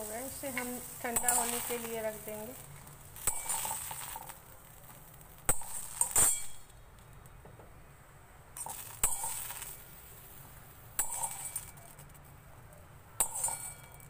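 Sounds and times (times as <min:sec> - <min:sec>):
metal ladle clinking: 0:13.2 - 0:14.0.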